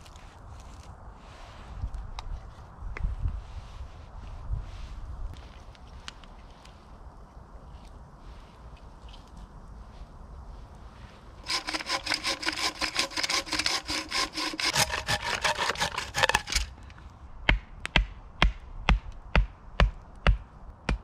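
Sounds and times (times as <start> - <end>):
hand saw cutting wood: 11.4 - 16.8.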